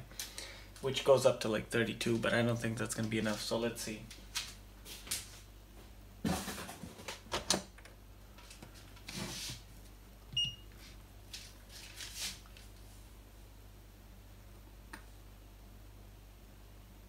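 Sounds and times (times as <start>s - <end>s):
thumps and rustles: 6.2s - 7.5s.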